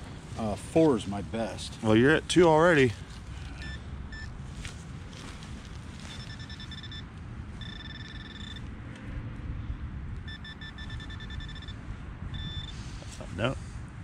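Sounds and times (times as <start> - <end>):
wind rumble: 0.0 - 14.0
pinpointer electronic beeps: 3.6 - 4.3, 6.1 - 8.7, 10.2 - 12.8.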